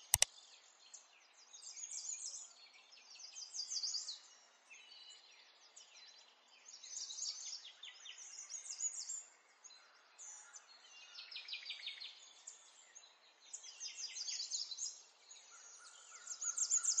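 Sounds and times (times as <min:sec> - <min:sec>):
small birds chirping: 0:00.0 - 0:01.8.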